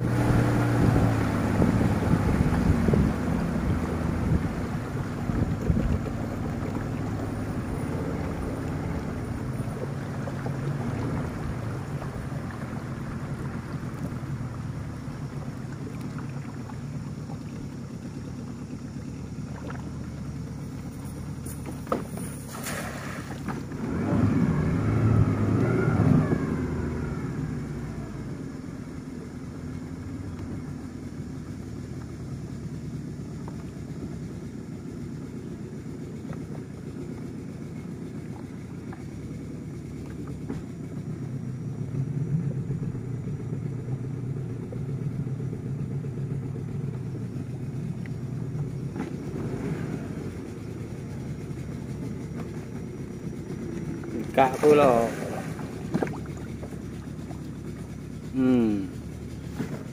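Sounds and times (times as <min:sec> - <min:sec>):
boat motor running low: 0:00.0 - 0:59.9
net splashing into water: 0:22.2 - 0:23.6.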